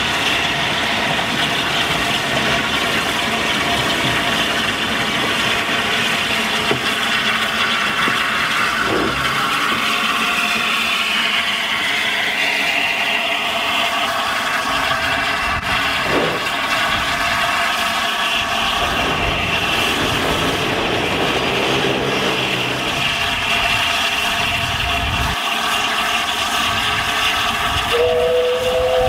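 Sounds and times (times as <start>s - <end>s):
steam locomotive hissing: 0.0s - 29.0s
traffic rumble: 1.1s - 10.2s, 18.3s - 25.4s.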